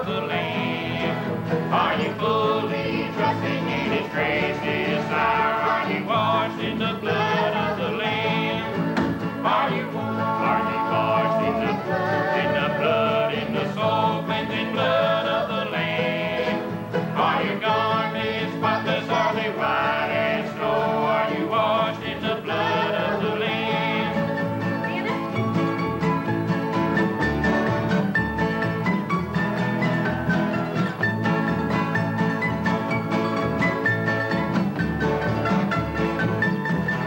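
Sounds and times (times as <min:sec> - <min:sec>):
voices singing together: 0:00.0 - 0:25.1
acoustic guitar: 0:00.0 - 0:37.0
upright bass: 0:00.0 - 0:37.0.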